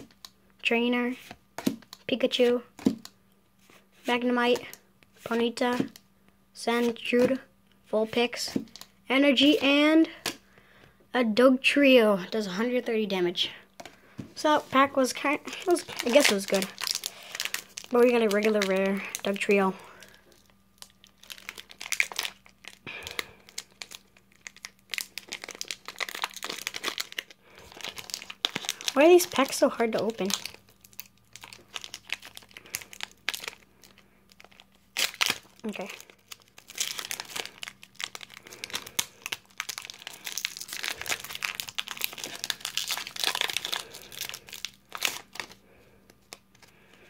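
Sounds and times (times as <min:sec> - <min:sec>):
foil pack crinkling and rustling: 0:13.8 - 0:47.0.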